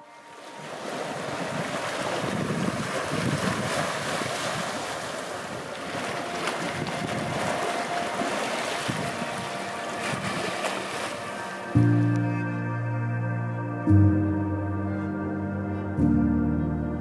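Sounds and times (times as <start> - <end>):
waves lapping on rocks: 0.2 - 11.6
wind on microphone: 0.8 - 10.7.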